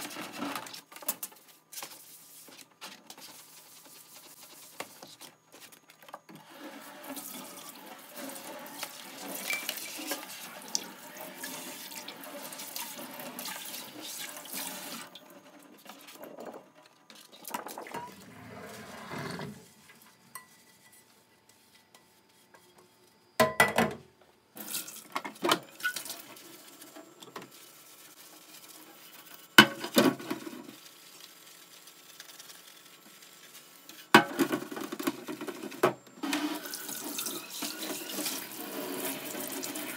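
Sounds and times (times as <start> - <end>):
frying pan and dishes clanking: 9.4 - 10.2.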